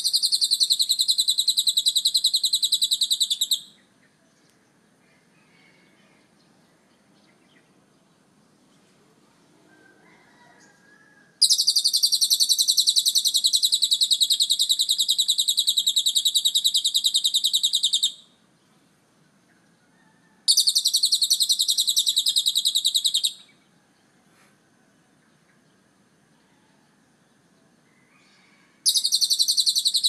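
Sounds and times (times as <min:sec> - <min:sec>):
lovebird chattering trill: 0:00.0 - 0:03.8, 0:11.4 - 0:18.2, 0:20.5 - 0:23.5, 0:28.9 - 0:30.0.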